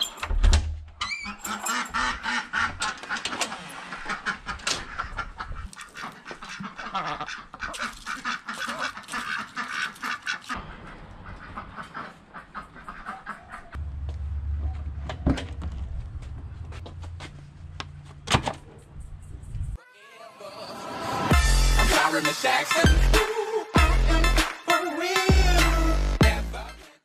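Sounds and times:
ducks quacking: 0:01.4 - 0:13.8.

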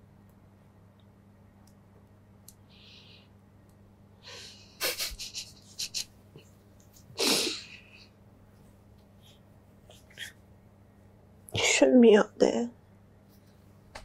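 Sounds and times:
breathy bursts of laughter: 0:04.4 - 0:06.1
person sniffling: 0:07.2 - 0:08.1.

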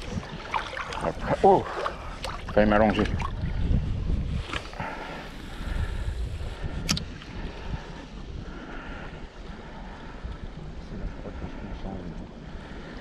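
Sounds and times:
wind rumbling on microphone: 0:00.0 - 0:13.0
sharp click: 0:06.8 - 0:07.1.

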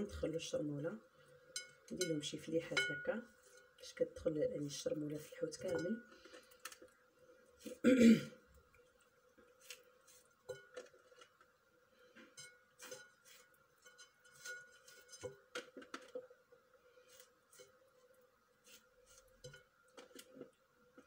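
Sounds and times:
faint steady hum: 0:00.0 - 0:21.0
knife scraping fish on plate: 0:12.8 - 0:15.4.

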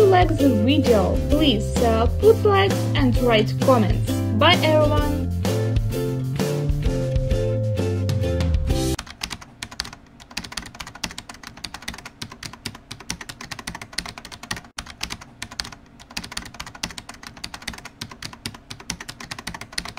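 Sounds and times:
keyboard typing: 0:09.0 - 0:19.9.

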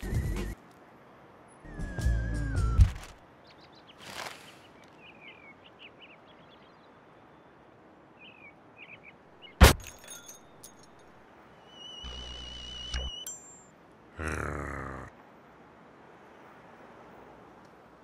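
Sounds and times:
faint bird-like chirps: 0:03.4 - 0:09.6, 0:11.5 - 0:13.4.

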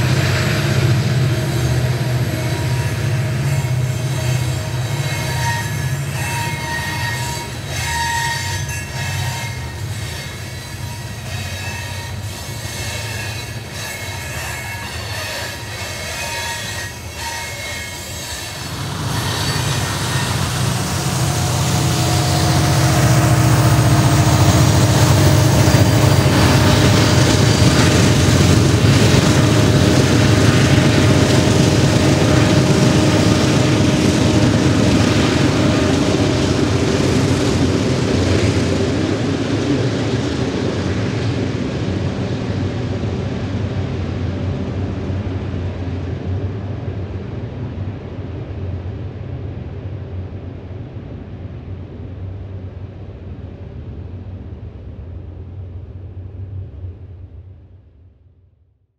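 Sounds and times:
locomotive engine rumble with whine: 0:00.0 - 0:57.1.

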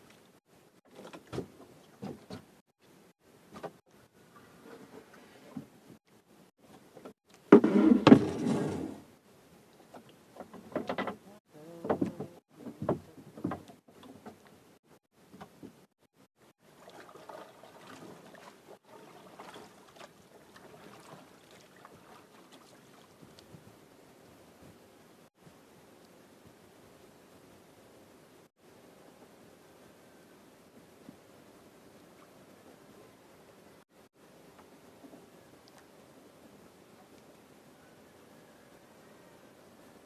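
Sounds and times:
water lapping: 0:00.0 - 0:02.7, 0:16.5 - 0:23.8
water splashing against boat: 0:16.6 - 0:23.8.

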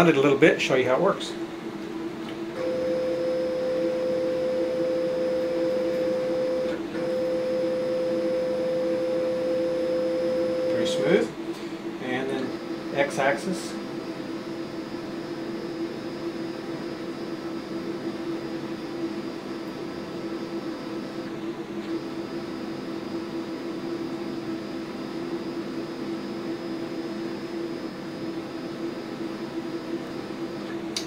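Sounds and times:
high tone: 0:02.6 - 0:11.2
stepper motor whine: 0:02.6 - 0:11.4, 0:12.0 - 0:30.5.

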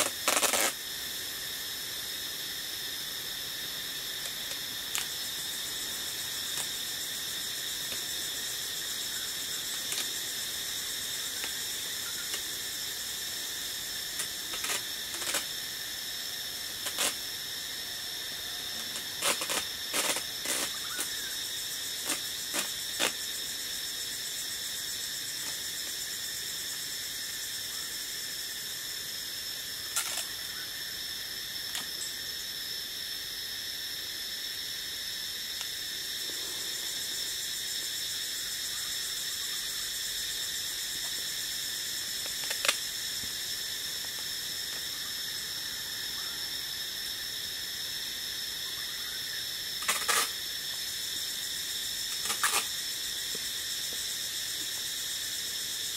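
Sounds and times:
adhesive tape ripping off roll: 0:00.0 - 0:00.8, 0:14.2 - 0:15.5, 0:16.8 - 0:17.2, 0:18.8 - 0:21.1, 0:22.0 - 0:23.2
shrill insect chorus: 0:00.0 - 0:55.9.

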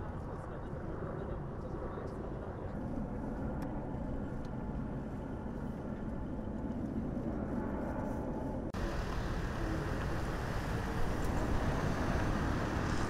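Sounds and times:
low traffic rumble: 0:00.0 - 0:13.0.

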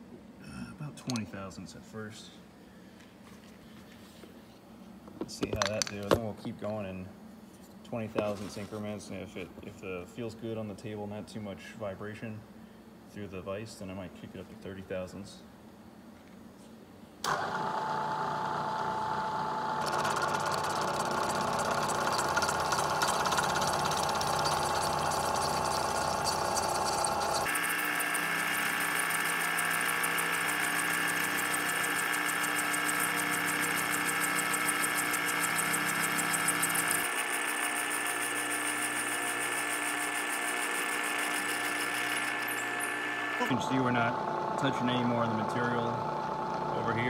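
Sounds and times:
milling machine humming: 0:17.3 - 0:47.0.

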